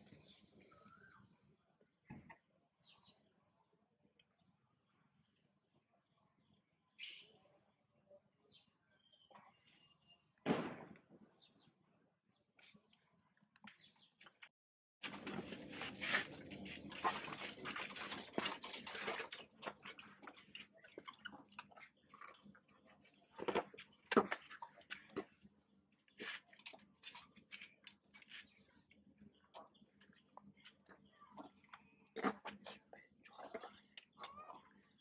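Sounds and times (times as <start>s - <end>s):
monkeys rustling and clicking: 15.1s - 25.4s, 26.2s - 35.0s.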